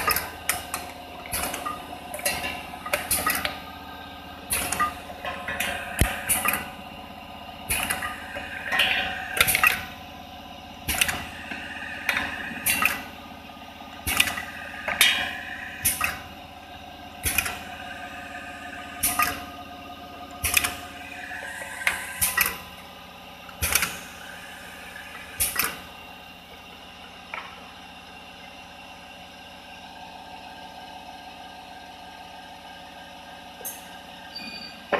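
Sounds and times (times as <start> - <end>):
sharp mechanical clacks: 0.0 - 3.6, 4.5 - 6.7, 7.7 - 9.8, 10.9 - 13.1, 14.0 - 16.2, 17.2 - 17.8, 19.0 - 19.4, 20.4 - 22.6, 23.5 - 24.0, 25.1 - 25.8
machine hum: 0.0 - 30.2.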